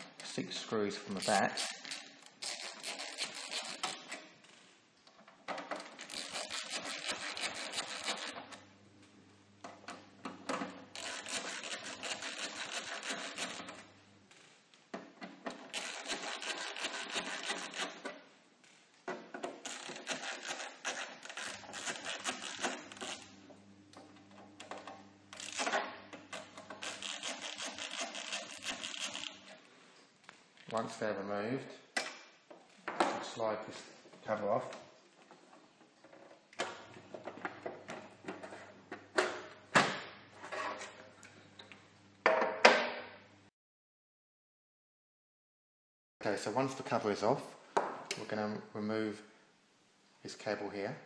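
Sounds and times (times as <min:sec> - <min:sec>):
screwdriver grinding on screws: 0:01.2 - 0:04.1, 0:05.8 - 0:08.6, 0:10.9 - 0:13.8, 0:15.6 - 0:18.0, 0:19.6 - 0:23.3, 0:25.3 - 0:29.5.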